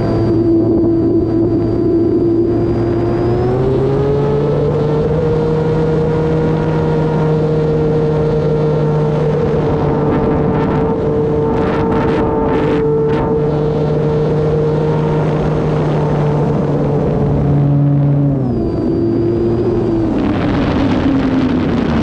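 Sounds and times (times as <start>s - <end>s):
electric motor and propeller whining: 0.0s - 22.0s.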